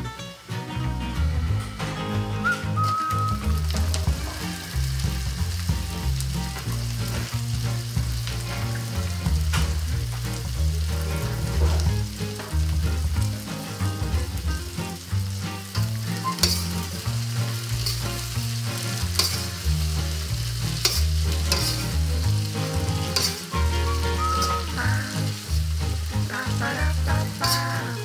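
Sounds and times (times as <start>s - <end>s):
beans sizzling in a wok: 0.0s - 28.0s
metal spatula scraping a wok: 15.7s - 25.6s, 27.3s - 28.0s.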